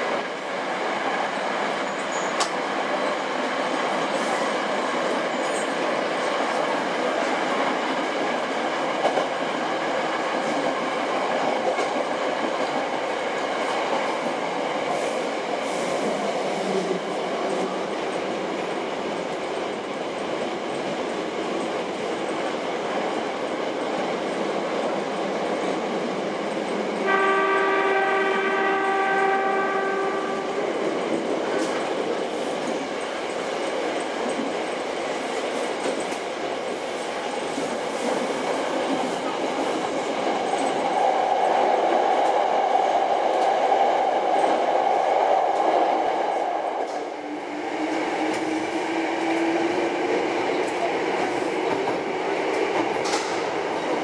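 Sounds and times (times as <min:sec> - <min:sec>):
train wheels rumbling on rails: 0:00.0 - 0:54.0
train horn steady note: 0:27.0 - 0:30.6.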